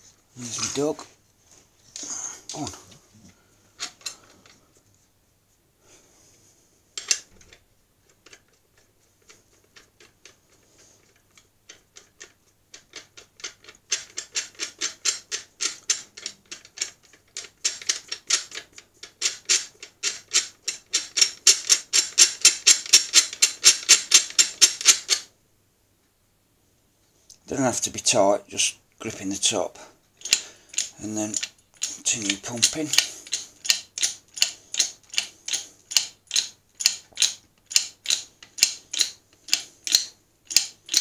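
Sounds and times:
metal nuts clicking on studs: 0:07.0 - 0:07.2, 0:11.3 - 0:25.2, 0:30.2 - 0:41.0.

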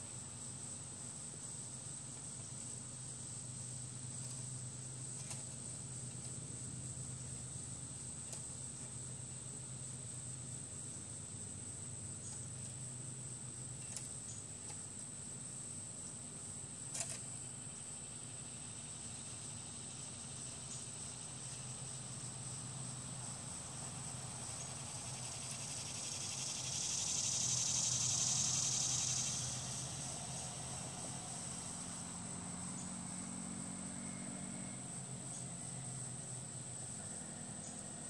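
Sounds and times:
high thin insect-like drone: 0:15.6 - 0:38.0
hiss: 0:23.2 - 0:32.2.

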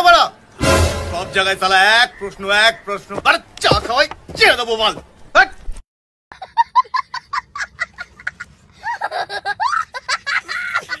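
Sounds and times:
boy laughing: 0:06.3 - 0:11.0.

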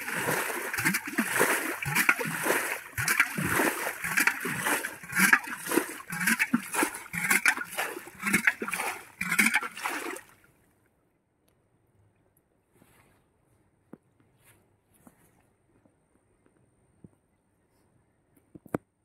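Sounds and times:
water splashing and sloshing: 0:00.0 - 0:11.0.

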